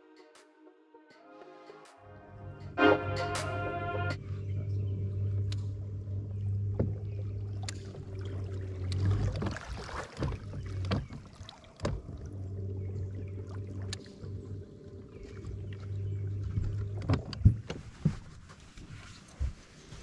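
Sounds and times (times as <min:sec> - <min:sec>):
trolling motor humming: 0:02.6 - 0:17.6
clicks and knocks of boat gear: 0:06.6 - 0:20.0.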